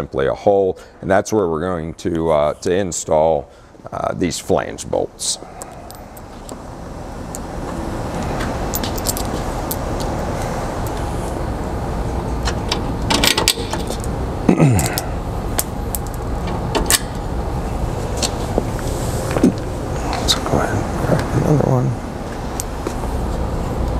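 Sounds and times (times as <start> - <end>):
steady rustling noise: 4.8 - 14.4, 15.2 - 23.9
metal bolts clicking and clinking: 8.7 - 10.1, 12.4 - 14.1.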